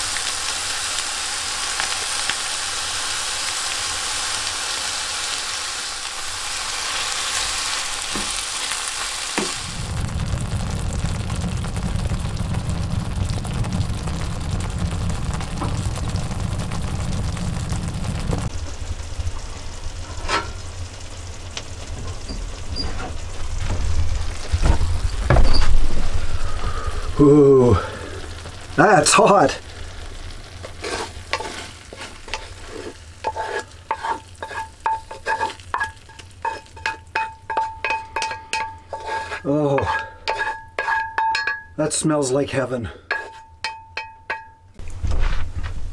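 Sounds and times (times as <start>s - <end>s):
vegetables sizzling in a skillet: 0.0s - 45.4s
steady low rumble: 9.6s - 28.8s
wooden spatula scraping pan: 30.6s - 41.4s, 43.1s - 43.5s
metallic ring from pan: 34.8s - 39.2s, 39.9s - 41.8s, 43.1s - 44.7s.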